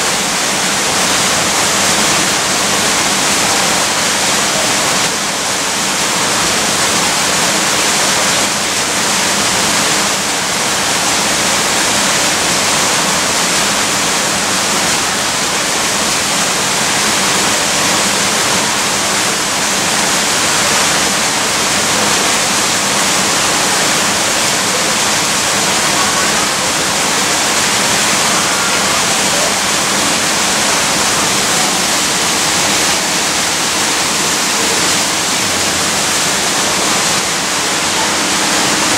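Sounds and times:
rushing running water: 0:00.0 - 0:38.9.

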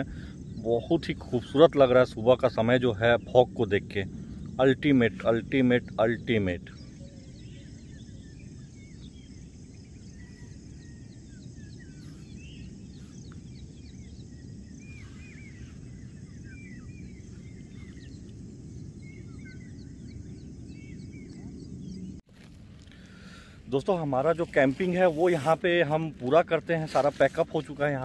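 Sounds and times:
birds chirping and whistling: 0:00.0 - 0:22.2
low background rumble: 0:00.0 - 0:28.0.

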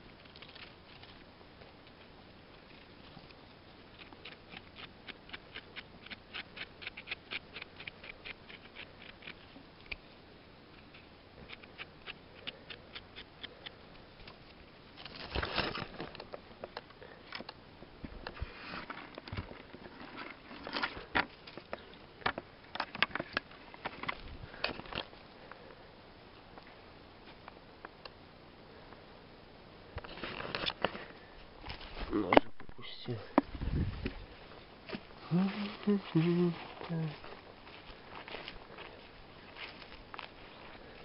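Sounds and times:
rustling and snapping: 0:00.0 - 0:10.1, 0:10.8 - 0:17.6.

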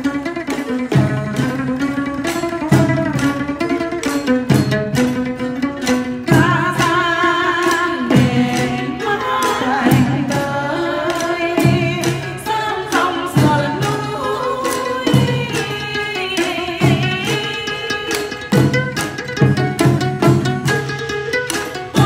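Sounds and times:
plucked lute: 0:00.0 - 0:22.0
sticks on small drums and clappers: 0:00.0 - 0:22.0
person singing with vibrato: 0:06.3 - 0:18.4.

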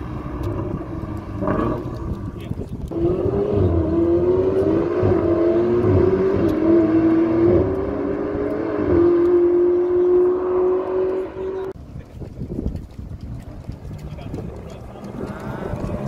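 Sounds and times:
car engine accelerating hard: 0:00.0 - 0:11.8, 0:13.8 - 0:16.0.

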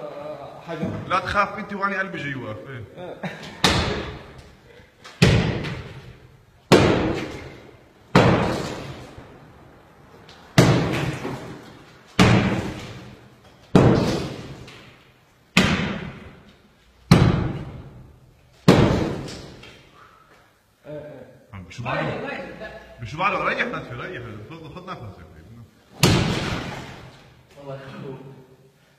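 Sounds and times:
hammer striking concrete wall: 0:03.6 - 0:04.2, 0:06.7 - 0:09.0, 0:10.6 - 0:11.6, 0:12.2 - 0:13.1, 0:13.7 - 0:14.7, 0:15.6 - 0:16.4, 0:17.1 - 0:18.0, 0:18.7 - 0:19.5.

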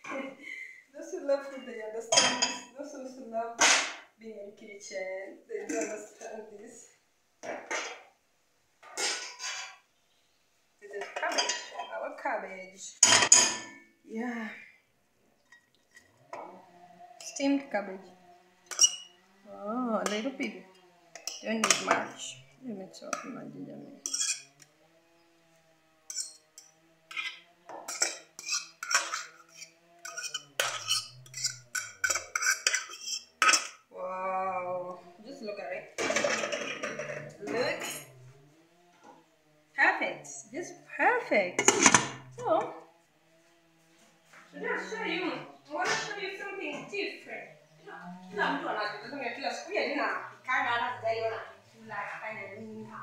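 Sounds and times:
metal pots and utensils clattering: 0:02.1 - 0:02.8, 0:03.6 - 0:04.0, 0:05.5 - 0:06.4, 0:07.4 - 0:08.1, 0:08.8 - 0:09.8, 0:10.8 - 0:12.4, 0:13.0 - 0:13.9, 0:15.4 - 0:17.9, 0:18.6 - 0:19.2, 0:20.0 - 0:22.4, 0:23.0 - 0:24.6, 0:26.0 - 0:33.9, 0:36.0 - 0:38.2, 0:41.5 - 0:42.8, 0:44.7 - 0:47.0
metal scraping and knocking: 0:08.8 - 0:09.8, 0:18.6 - 0:19.2, 0:21.2 - 0:22.4, 0:23.0 - 0:24.7, 0:26.0 - 0:33.8, 0:36.0 - 0:38.2, 0:41.3 - 0:42.8.

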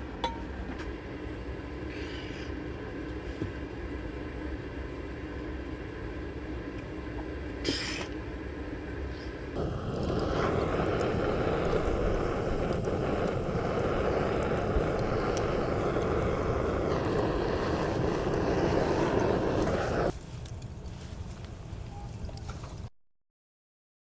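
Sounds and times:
gas torch burning: 0:00.0 - 0:22.9.

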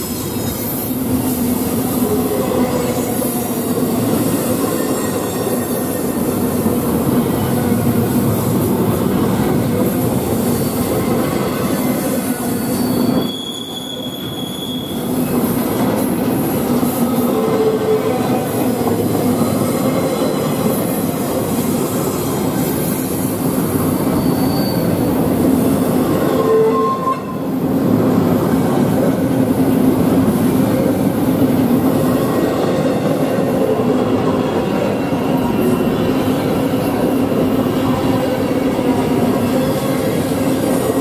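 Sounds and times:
train wheels rumbling on rail: 0:00.0 - 0:41.0
wheel squeal: 0:10.4 - 0:15.3, 0:23.8 - 0:25.4, 0:26.3 - 0:27.4.

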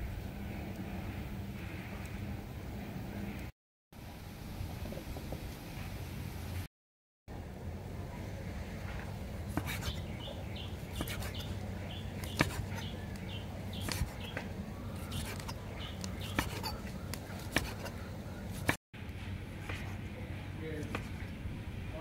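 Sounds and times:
knife slicing meat: 0:09.5 - 0:10.1, 0:10.9 - 0:11.5, 0:12.2 - 0:13.2, 0:13.8 - 0:14.3, 0:15.0 - 0:18.8.

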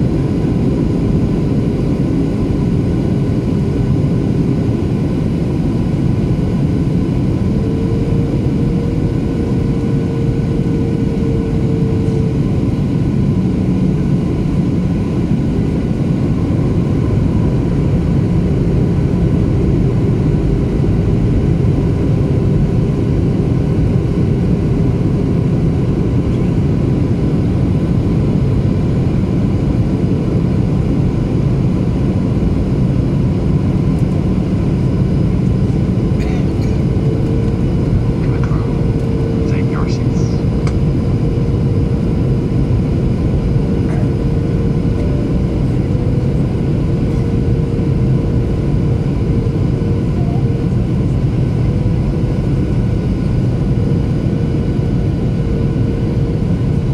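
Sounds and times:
airplane cabin rumble: 0:00.0 - 0:56.9
faint steady engine tones: 0:35.2 - 0:56.2.

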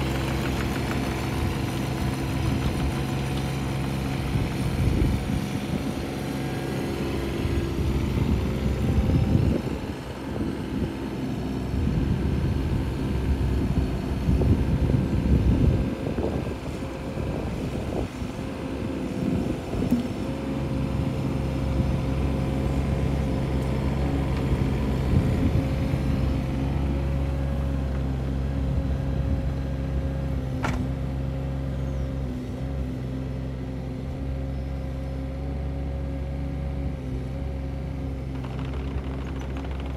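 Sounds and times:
excavator diesel engine running: 0:00.0 - 0:39.9
knocks of log being stacked: 0:30.6 - 0:30.9, 0:38.3 - 0:39.9.

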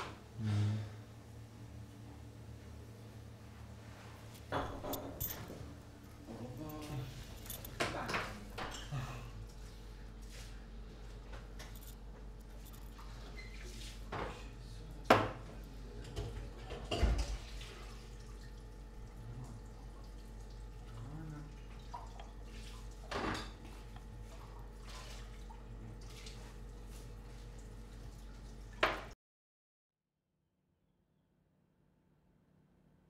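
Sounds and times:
low steady hum: 0:00.2 - 0:28.8
cups and milk pitcher clinking: 0:04.3 - 0:09.0, 0:15.1 - 0:26.4.

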